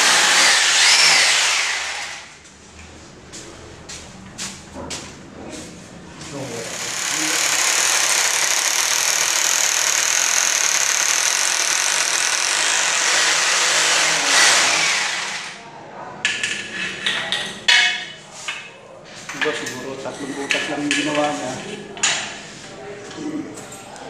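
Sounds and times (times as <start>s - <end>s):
power drill boring into tile: 0.0s - 2.3s, 6.6s - 15.6s.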